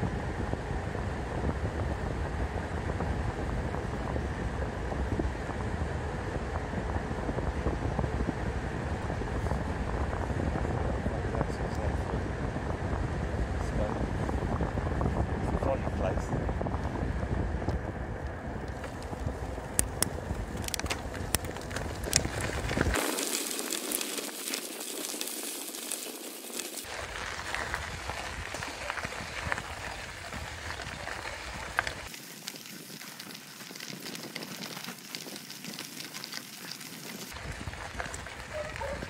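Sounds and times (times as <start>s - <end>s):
wind rumbling on microphone: 0.0s - 39.0s
bicycle tyres crunching on gravel: 17.8s - 39.0s.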